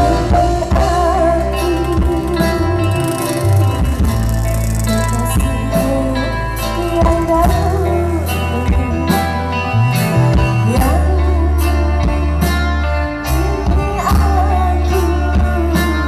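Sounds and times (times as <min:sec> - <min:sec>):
steady drum beat: 0:00.0 - 0:06.2
electric guitar melody: 0:00.0 - 0:16.0
live band music: 0:00.0 - 0:16.0.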